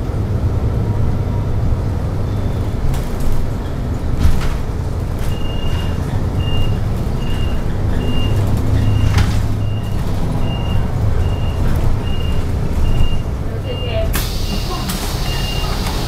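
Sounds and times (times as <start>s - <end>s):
bus engine droning: 0.0s - 16.0s.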